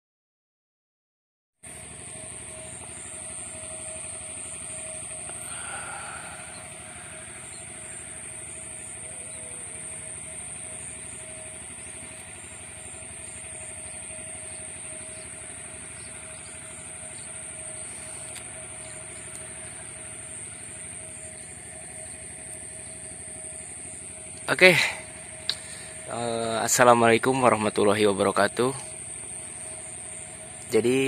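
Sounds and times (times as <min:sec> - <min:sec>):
high-pitched hum: 0:01.6 - 0:31.0
outdoor drone: 0:01.6 - 0:31.0.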